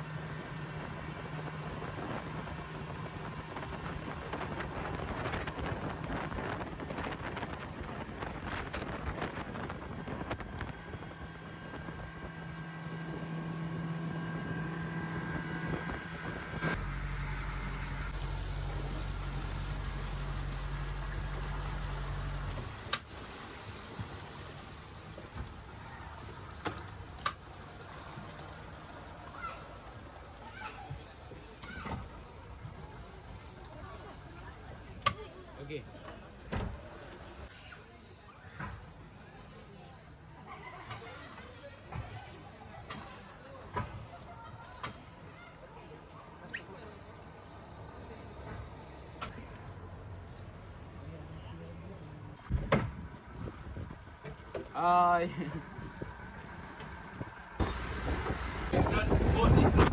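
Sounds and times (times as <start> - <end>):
outboard engine running: 0.0 - 37.5, 42.0 - 59.9
water trickling around boat: 0.0 - 59.9
wind rushing across microphone: 3.1 - 12.0, 57.2 - 59.9.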